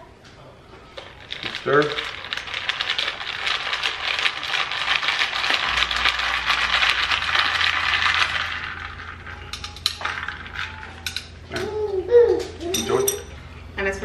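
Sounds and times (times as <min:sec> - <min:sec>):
metal stirrer clinking in glass jar: 0:12.7 - 0:13.4.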